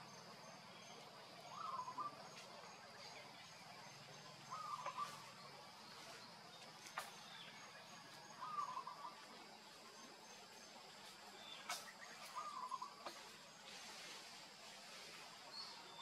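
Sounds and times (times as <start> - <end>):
pulsing insect chirp: 0.0 - 16.0
bird warbling call: 1.5 - 2.2, 4.4 - 5.4, 8.4 - 9.2, 11.5 - 13.1.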